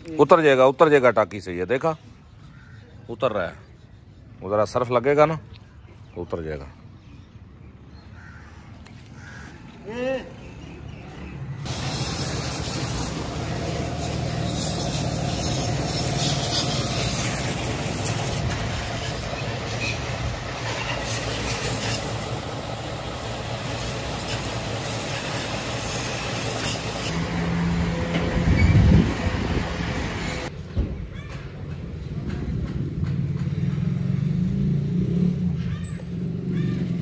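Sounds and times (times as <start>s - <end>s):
pressure washer spray hissing: 11.7s - 30.5s.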